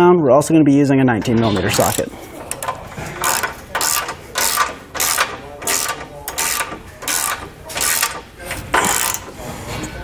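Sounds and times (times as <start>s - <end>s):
hand ratchet clicking: 1.7s - 9.3s.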